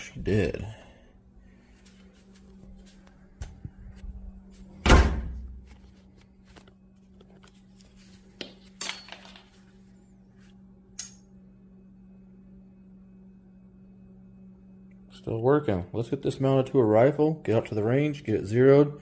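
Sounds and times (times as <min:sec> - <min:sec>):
low steady hum: 0:00.0 - 0:19.0
oven door shutting: 0:04.8 - 0:05.5.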